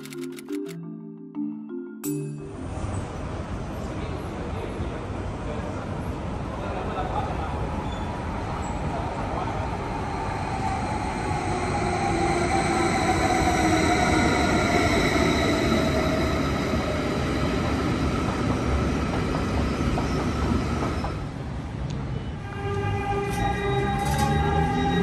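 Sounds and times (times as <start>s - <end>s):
train whine and wheel squeal: 7.7s - 25.0s.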